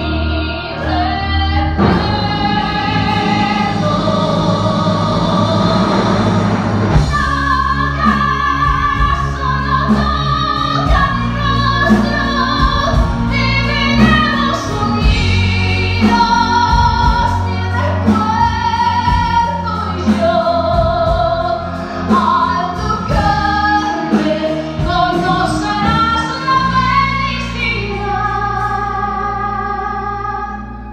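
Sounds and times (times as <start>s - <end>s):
low beats: 0.0s - 30.9s
musical theatre singing: 0.0s - 30.9s
orchestra: 0.0s - 30.9s.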